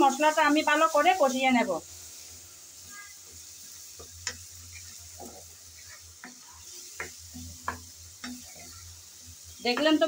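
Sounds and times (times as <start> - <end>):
food sizzling in a metal pan: 0.0 - 10.0
wooden spatula scraping a pan: 2.8 - 10.0.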